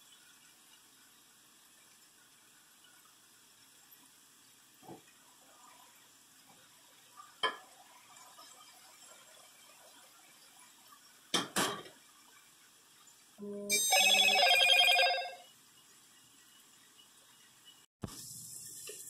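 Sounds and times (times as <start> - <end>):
pulsing phone ringtone: 13.7 - 15.4.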